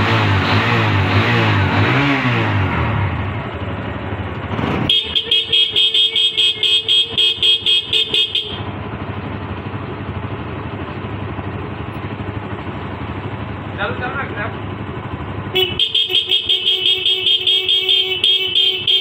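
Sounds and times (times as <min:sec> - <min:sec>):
motorcycle engine idling: 0:03.0 - 0:19.0
motorcycle horn beeping: 0:04.9 - 0:09.0, 0:15.4 - 0:19.0.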